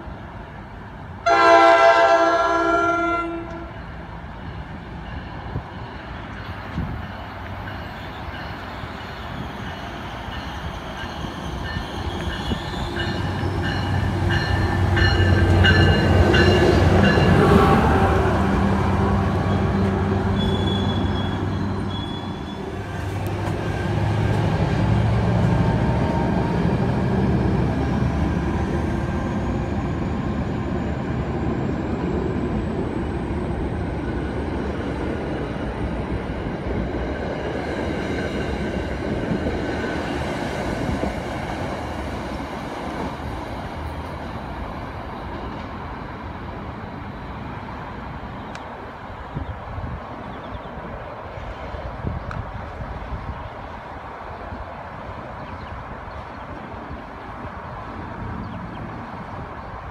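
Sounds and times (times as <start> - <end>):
train engine hum and wheel rumble: 0.0 - 59.9
high wheel squeals: 7.8 - 14.7, 19.4 - 23.0.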